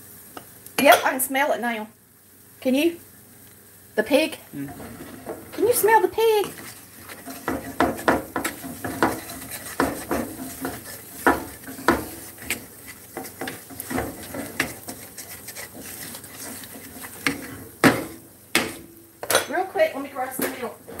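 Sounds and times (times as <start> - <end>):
wooden spatula scraping pan: 4.7 - 18.9, 19.5 - 21.0.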